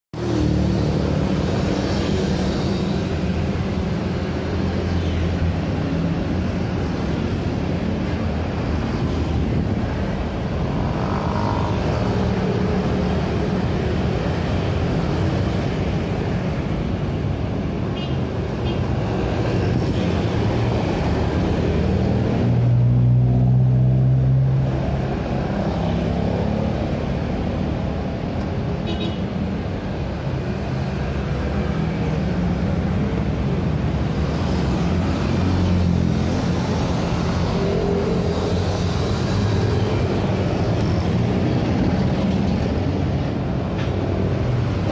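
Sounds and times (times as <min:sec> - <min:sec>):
motorcycles and cars passing: 0:00.2 - 0:44.9.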